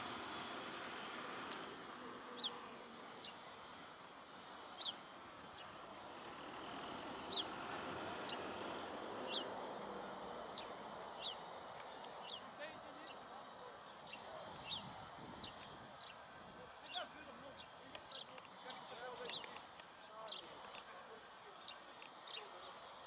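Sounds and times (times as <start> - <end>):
outdoor background hiss: 0.0 - 23.0
small bird chirping: 2.3 - 3.5, 4.6 - 5.8, 7.2 - 8.6, 9.2 - 20.9, 21.5 - 23.0.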